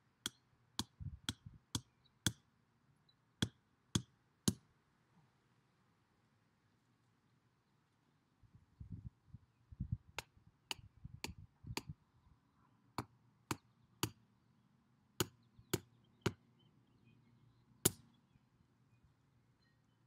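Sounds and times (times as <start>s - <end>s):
hammer knocking on wooden stake: 3.4s - 4.6s.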